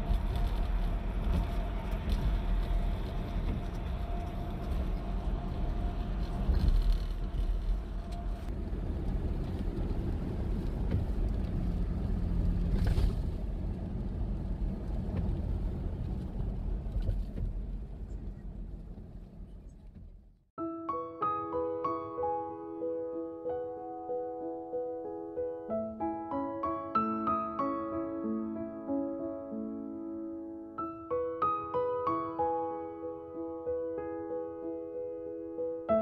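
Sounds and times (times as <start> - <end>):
road and engine rumble in car: 0.0 - 20.6.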